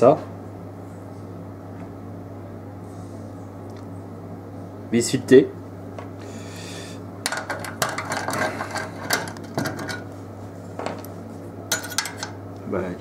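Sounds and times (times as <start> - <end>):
metal parts clinking on steel panel: 7.3 - 10.0, 11.7 - 12.4.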